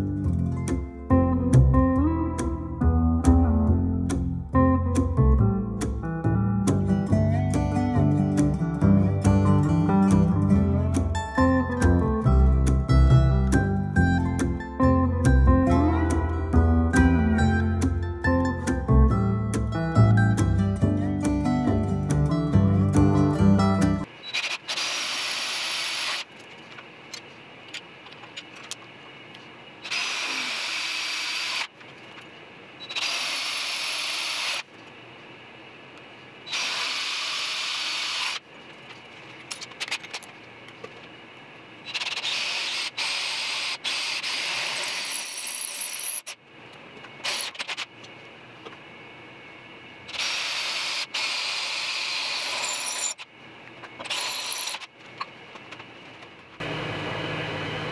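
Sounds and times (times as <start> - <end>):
power drill boring into steel: 29.9 - 31.7, 36.5 - 38.4, 50.2 - 53.2.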